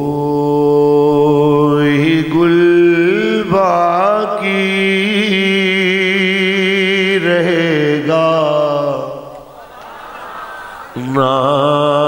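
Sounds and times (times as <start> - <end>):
man chanting in held notes: 0.0 - 9.3.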